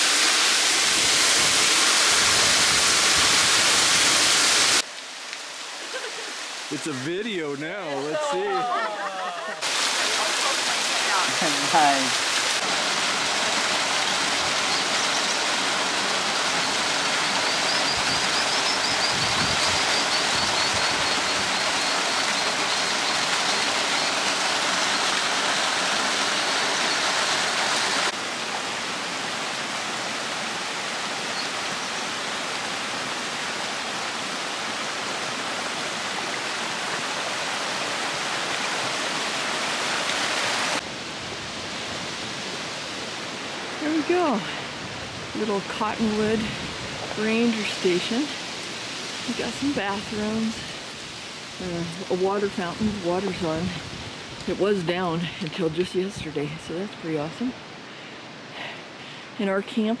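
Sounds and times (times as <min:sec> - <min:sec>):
waterfall splashing into pool: 0:00.0 - 0:40.9.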